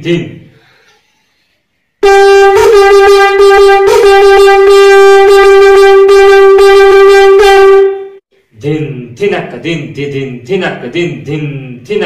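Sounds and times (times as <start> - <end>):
conch shell blown: 2.0 - 8.2.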